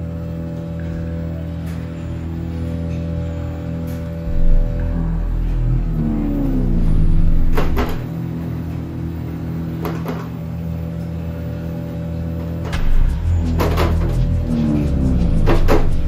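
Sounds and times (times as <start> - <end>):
dark music drone: 0.0 - 16.0.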